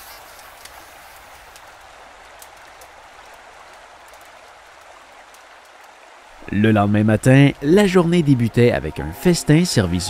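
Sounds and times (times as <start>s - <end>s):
small crackles and ticks: 0.0s - 6.4s.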